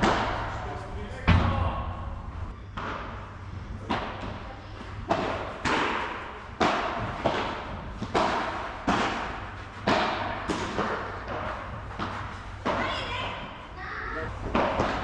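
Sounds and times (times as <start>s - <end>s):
ball bouncing on court: 0.0s - 0.6s
padel ball struck by rackets: 5.1s - 12.8s.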